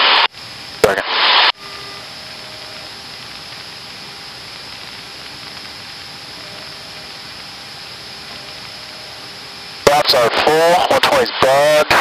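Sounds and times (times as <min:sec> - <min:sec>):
faint steady hum tones: 0:00.0 - 0:12.0.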